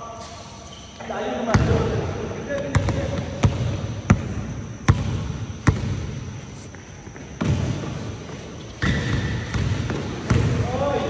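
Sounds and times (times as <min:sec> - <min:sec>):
low background noise: 0:00.0 - 0:11.0.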